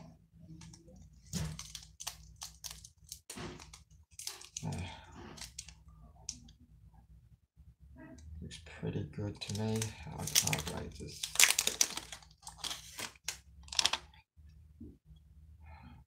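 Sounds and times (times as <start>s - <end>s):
cards rustling: 0.6s - 5.8s, 9.4s - 14.1s.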